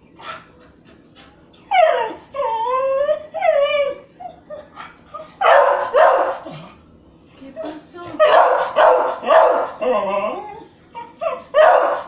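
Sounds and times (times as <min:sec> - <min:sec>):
dog whining: 0:00.2 - 0:12.0
dog barking: 0:05.4 - 0:06.5, 0:08.2 - 0:09.8, 0:11.3 - 0:12.0.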